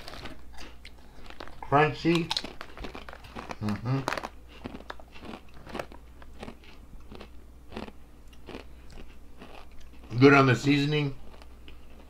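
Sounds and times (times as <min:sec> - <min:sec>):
potato chips crunching: 0:00.0 - 0:12.0.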